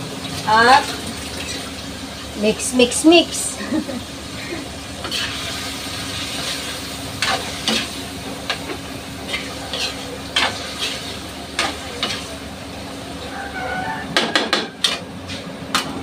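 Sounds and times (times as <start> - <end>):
pork sizzling in oil: 0.0 - 16.0
spatula scraping and knocking pan: 14.0 - 16.0.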